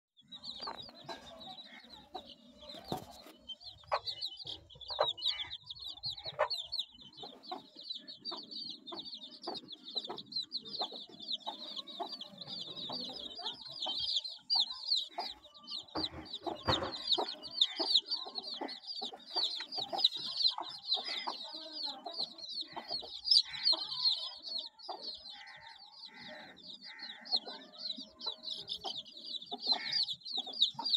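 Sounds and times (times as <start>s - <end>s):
chicks peeping: 0.2s - 30.9s
hen clucking: 0.5s - 30.9s.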